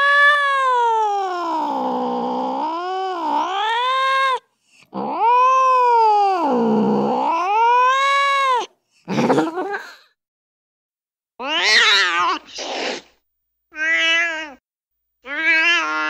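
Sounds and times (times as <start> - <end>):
cat yowling: 0.0 - 8.7, 11.4 - 12.6, 13.7 - 14.6, 15.2 - 16.0.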